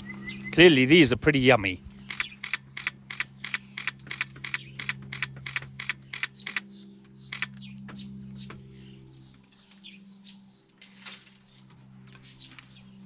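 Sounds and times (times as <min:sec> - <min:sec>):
steady low hum: 0:00.0 - 0:13.0
camera shutter clicks: 0:02.1 - 0:06.6, 0:07.3 - 0:07.6.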